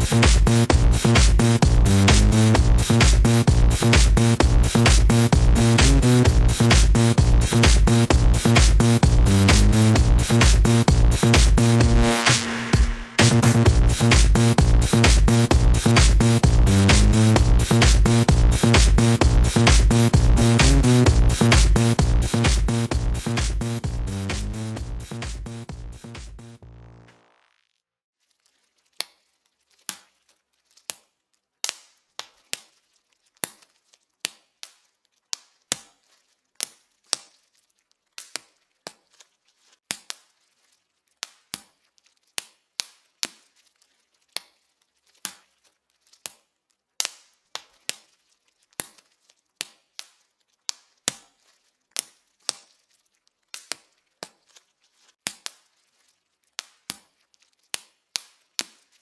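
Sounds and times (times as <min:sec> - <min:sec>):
bubble wrap popping: 0:28.3 - 0:59.0.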